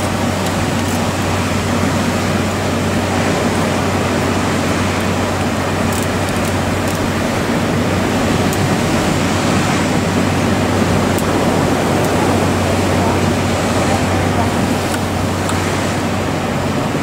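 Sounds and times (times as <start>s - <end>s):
low steady hum: 0.0s - 17.0s
ocean surf breaking: 0.0s - 17.0s.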